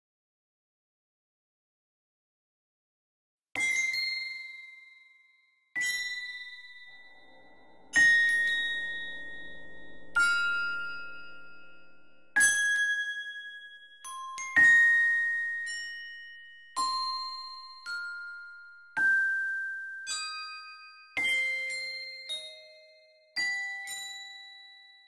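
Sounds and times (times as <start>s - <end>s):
slow bell-like notes: 5.8s - 16.0s
soft low chord: 6.2s - 12.4s.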